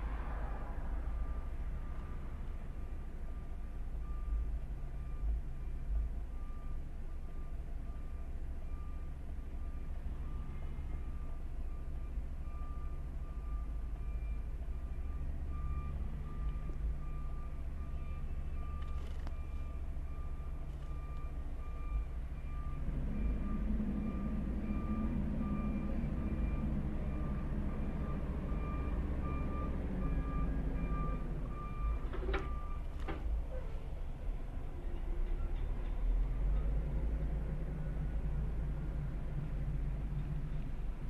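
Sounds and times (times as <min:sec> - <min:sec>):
diesel engine rumble: 0:00.0 - 0:41.0
truck reversing alarm beeping: 0:01.1 - 0:33.4.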